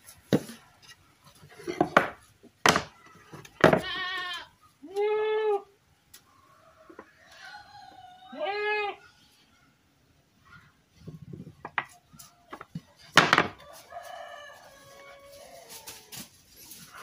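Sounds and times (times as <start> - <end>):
wood knocking and clattering: 1.6 - 3.9, 11.6 - 13.6.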